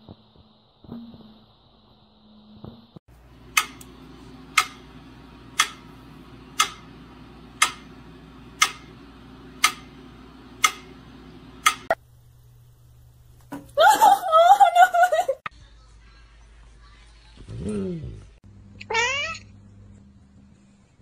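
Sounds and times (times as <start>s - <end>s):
low steady hum: 3.1s - 15.3s
metronome ticking: 3.4s - 12.0s.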